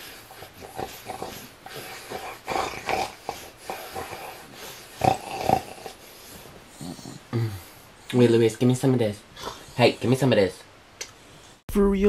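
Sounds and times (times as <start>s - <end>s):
small dog vocalizing: 0.3s - 6.0s.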